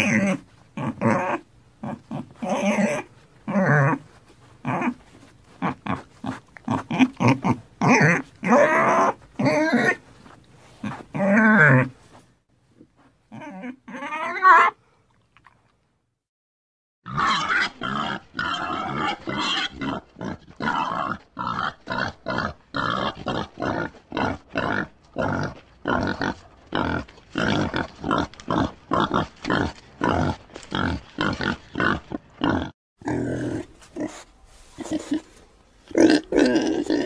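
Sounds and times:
pig grunting: 0.0 - 4.0, 5.6 - 10.0, 17.1 - 35.3, 35.9 - 37.0
pig squealing: 0.0 - 4.0, 5.6 - 10.0, 10.8 - 11.9, 13.3 - 14.8, 17.0 - 33.6.

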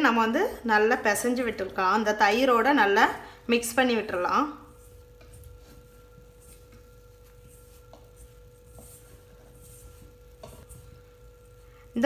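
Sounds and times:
faint high hum: 0.0 - 12.0
hand rustling flour in bowl: 4.5 - 11.7.

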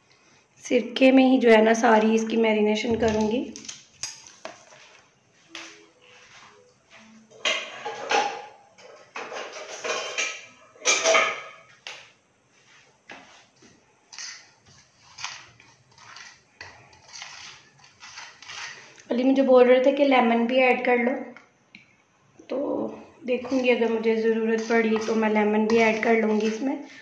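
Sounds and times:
metal spoon scraping steel bowl: 14.1 - 19.0, 23.3 - 27.0.

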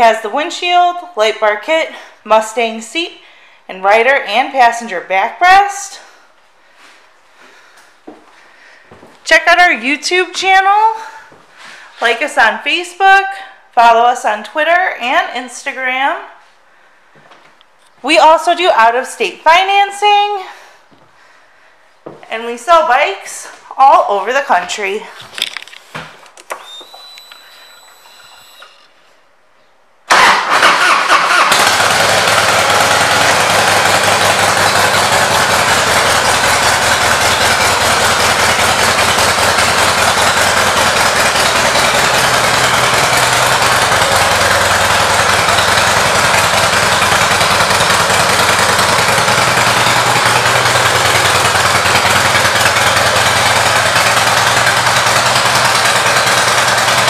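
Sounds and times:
motorcycle electric starter cranking: 25.4 - 29.0, 30.1 - 57.0
motorcycle engine idling: 31.3 - 57.0.

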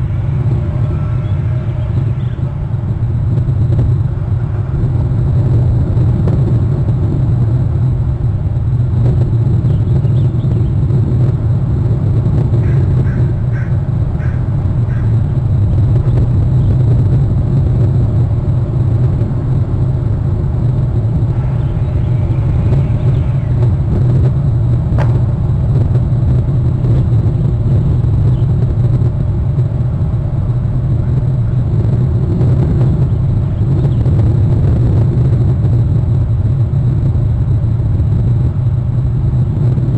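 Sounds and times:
faint bird calls: 0.0 - 2.6, 12.6 - 15.3, 21.3 - 23.7
loud low rumble: 0.0 - 39.9.

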